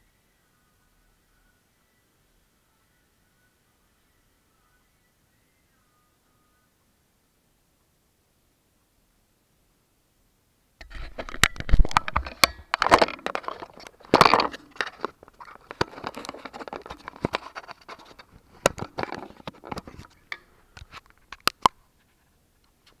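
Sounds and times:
camera handling rustling: 10.8 - 21.8
clicks and knocks: 10.8 - 21.8.

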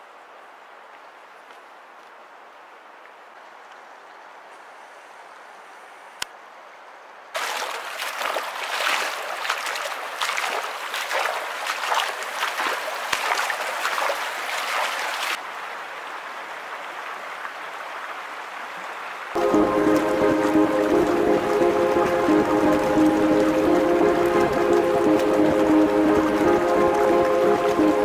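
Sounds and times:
feet splashing in creek: 7.4 - 15.4
creek water running: 7.4 - 28.0.

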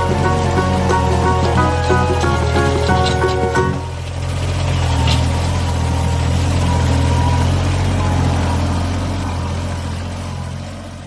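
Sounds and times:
blade pushing soil and grass: 0.0 - 11.0
tractor diesel engine running: 0.0 - 11.0.

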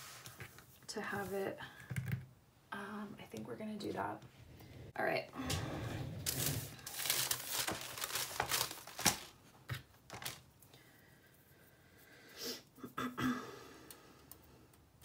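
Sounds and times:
wax paper crinkling: 6.2 - 10.5.

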